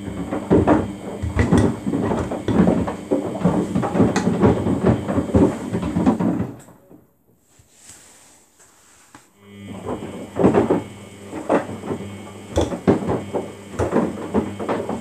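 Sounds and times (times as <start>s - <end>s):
washing machine drum tumbling: 0.0s - 6.6s, 9.6s - 15.0s
plastic drawer knocking and clattering: 0.0s - 6.8s, 9.9s - 15.0s.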